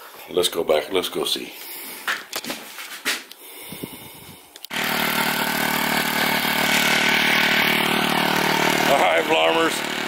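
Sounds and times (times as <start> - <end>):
tiller engine running: 4.7 - 10.0.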